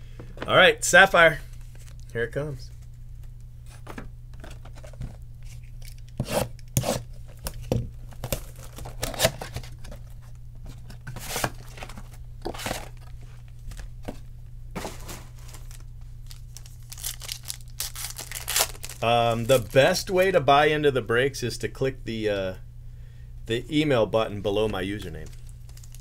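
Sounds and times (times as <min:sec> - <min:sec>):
packaging tearing and crinkling: 0:14.8 - 0:19.9, 0:25.0 - 0:26.0.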